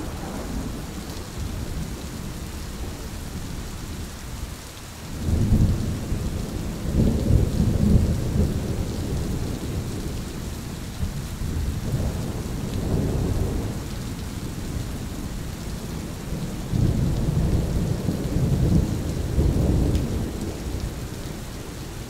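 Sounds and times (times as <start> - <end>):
thunder rumble: 0.0 - 3.1
steady rain: 0.0 - 22.0.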